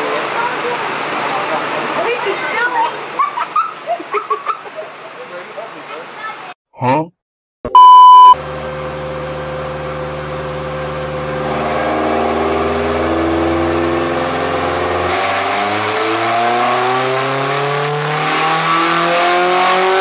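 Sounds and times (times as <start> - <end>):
car engine revving on dyno: 8.4 - 20.0.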